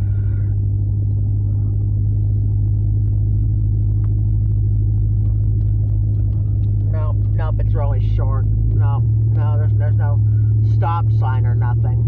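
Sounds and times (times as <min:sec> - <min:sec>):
car interior road rumble: 0:00.0 - 0:12.0.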